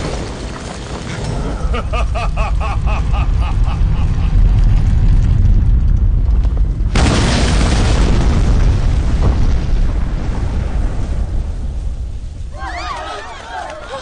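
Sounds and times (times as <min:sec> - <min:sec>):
deep rumble: 0:00.0 - 0:12.6
loud burst of noise: 0:01.4 - 0:12.2.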